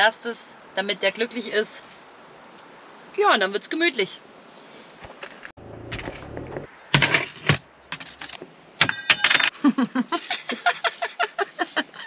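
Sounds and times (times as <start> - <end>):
cutlery and dishes clattering: 8.0 - 9.5.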